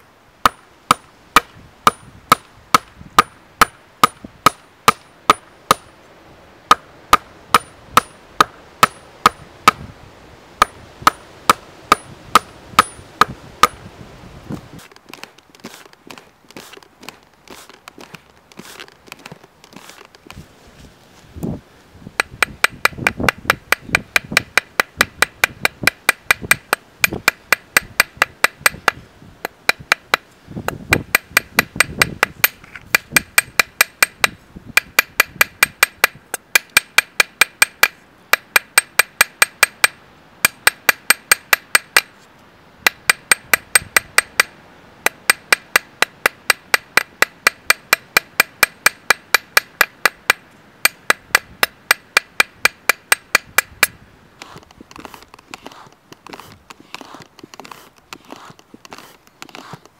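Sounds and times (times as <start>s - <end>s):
hammer striking iron rod: 0.4s - 5.9s, 6.7s - 9.8s, 10.6s - 13.8s, 22.2s - 30.2s, 30.9s - 42.1s, 42.8s - 54.0s.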